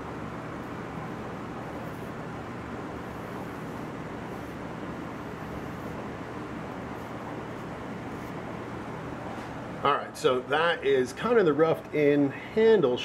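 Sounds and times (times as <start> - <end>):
background rumble and hiss: 0.0 - 13.0.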